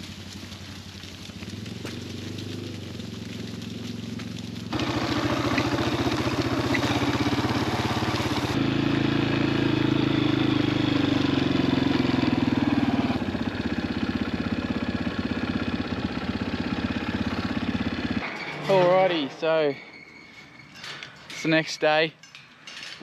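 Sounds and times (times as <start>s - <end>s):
dirt bike engine running: 0.0s - 18.2s.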